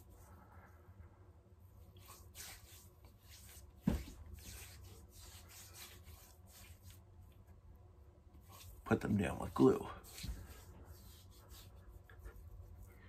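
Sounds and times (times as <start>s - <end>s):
hands rubbing skin: 2.0s - 7.4s, 8.4s - 12.9s.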